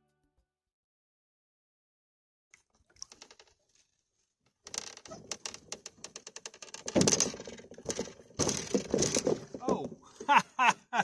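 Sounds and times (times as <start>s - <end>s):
knocks and clunks on canoe: 4.7s - 10.6s.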